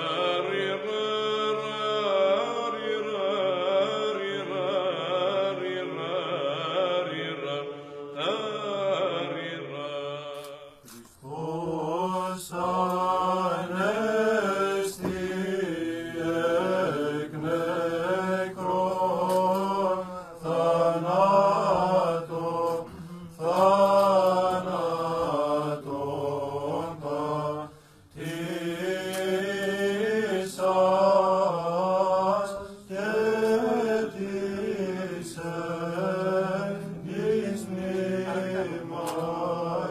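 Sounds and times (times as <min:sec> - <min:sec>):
held vocal drone: 0:00.0 - 0:39.9
singers breathing: 0:27.7 - 0:28.2.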